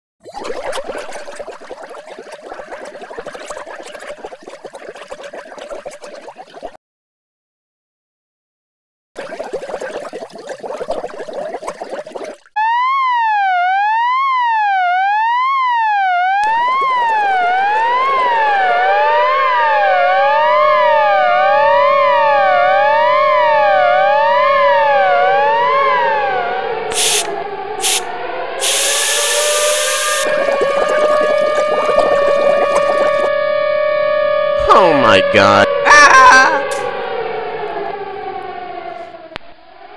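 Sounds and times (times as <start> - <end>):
electronic siren sweeping: 12.6 - 35.9, 36.5 - 39.9
second siren tone: 12.6 - 39.9
bursts of hiss: 26.9 - 30.2.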